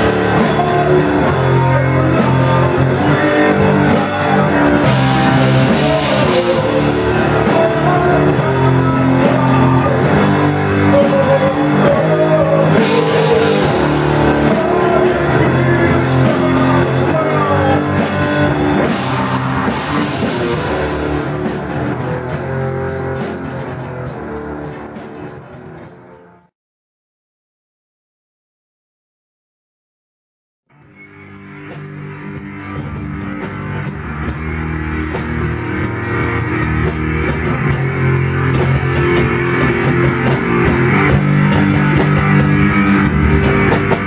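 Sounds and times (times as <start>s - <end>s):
person singing into a microphone: 0.0s - 21.1s
drum kit with crashing cymbals: 0.0s - 26.4s, 33.4s - 44.0s
distorted electric guitar: 0.0s - 26.5s, 30.7s - 44.0s.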